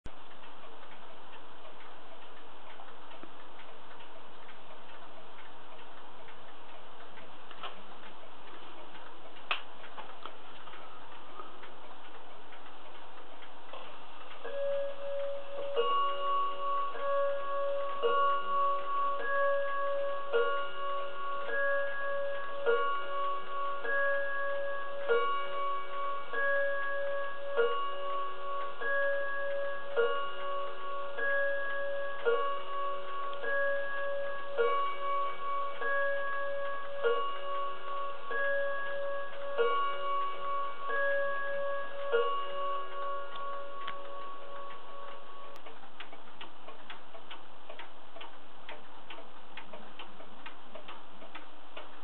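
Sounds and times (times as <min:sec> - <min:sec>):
clock ticking: 0:00.1 - 0:52.0
wall clock two-note chime: 0:14.4 - 0:45.6.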